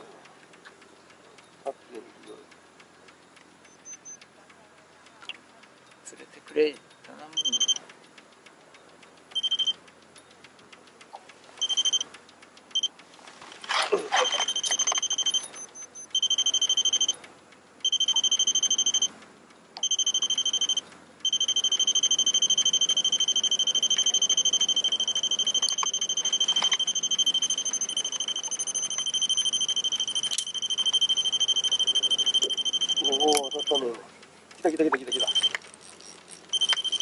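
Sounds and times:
electronic beeper fast-pulsing tone: 19.8s - 33.8s, 35.0s - 37.0s.

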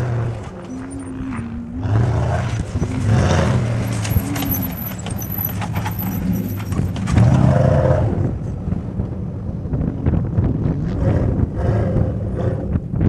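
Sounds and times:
vehicle engine revving: 0.0s - 8.5s
clicks and rattles: 2.6s - 7.4s.

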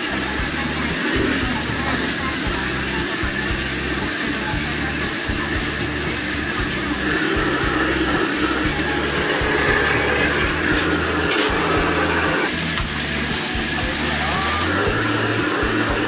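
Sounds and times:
gas burner roaring: 0.0s - 16.0s
stir-frying hiss in wok: 0.0s - 16.0s.

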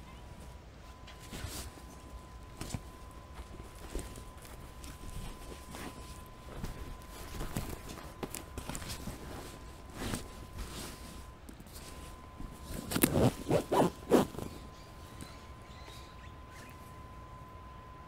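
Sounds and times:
fabric rustling: 0.4s - 15.2s
zipper strokes: 12.6s - 14.6s.

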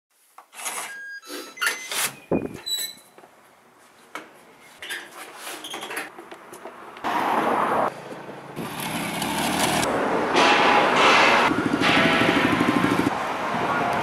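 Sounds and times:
short electronic beeps: 0.9s - 2.6s.

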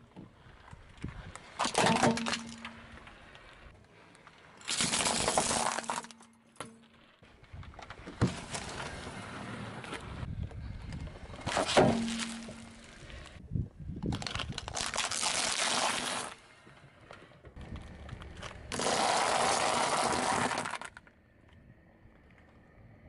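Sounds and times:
tyre crushing dry pasta: 4.6s - 6.3s, 14.0s - 16.4s, 18.4s - 21.1s
loud crack: 18.7s - 21.0s.

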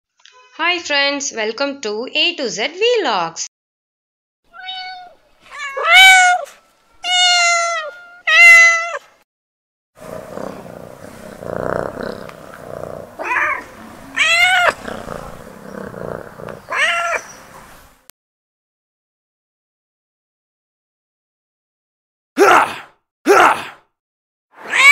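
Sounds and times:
kittens meowing: 4.5s - 9.0s, 13.1s - 17.3s, 24.7s - 24.9s.

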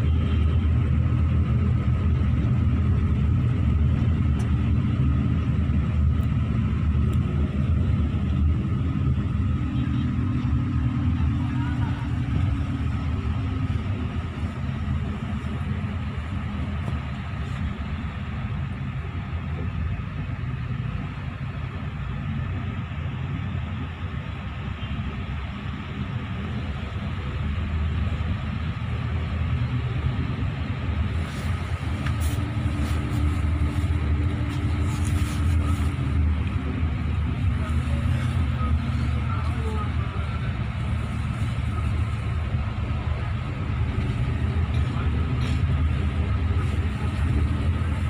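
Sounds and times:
bus engine drone: 0.0s - 48.0s
road rumble: 0.0s - 48.0s.

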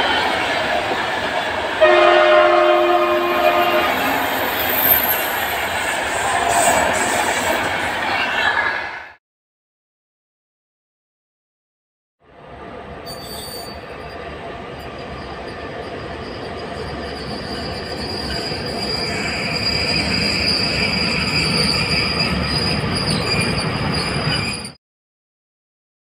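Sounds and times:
electric locomotive hauling freight train: 0.0s - 9.2s, 12.2s - 24.8s
high wheel squeal: 1.9s - 8.4s, 13.0s - 24.8s.

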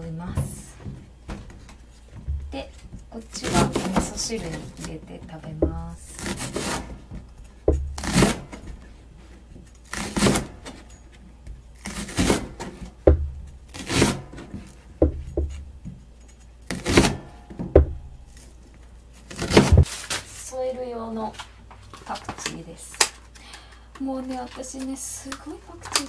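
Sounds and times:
knife slicing onion on board: 2.4s - 10.9s, 11.8s - 18.6s, 19.2s - 19.9s.

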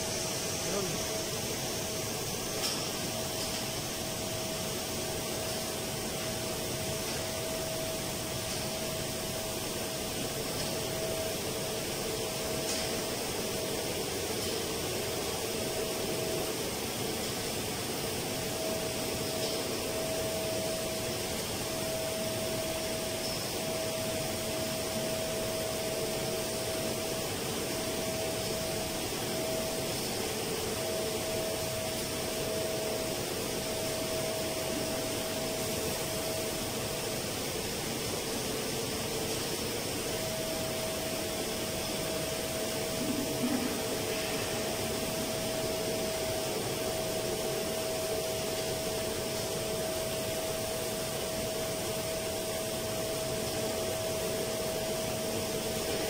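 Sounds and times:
faint steady whine: 0.0s - 56.0s
machinery hum: 0.0s - 56.0s.

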